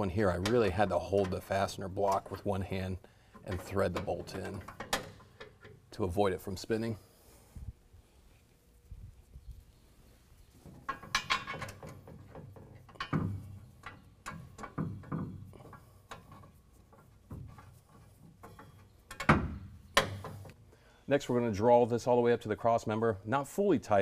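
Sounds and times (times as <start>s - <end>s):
metallic clinks and knocks: 10.7s - 20.6s.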